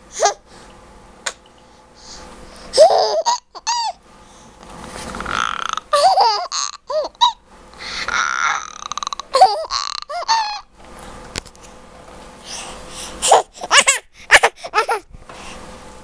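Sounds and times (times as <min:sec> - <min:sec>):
baby laughing and squealing: 0:02.8 - 0:04.0, 0:05.3 - 0:07.4, 0:08.0 - 0:10.7, 0:13.2 - 0:15.1.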